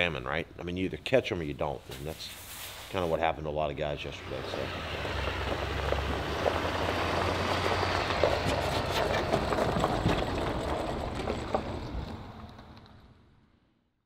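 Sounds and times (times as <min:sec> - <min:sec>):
pickup truck engine running: 0:04.0 - 0:12.6
tyre noise: 0:04.0 - 0:12.8
trailer clicks and rattles: 0:04.1 - 0:13.2.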